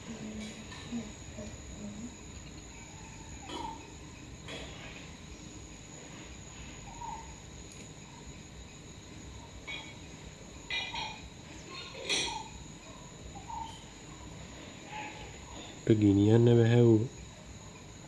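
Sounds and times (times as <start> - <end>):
insect drone: 0.0 - 18.0.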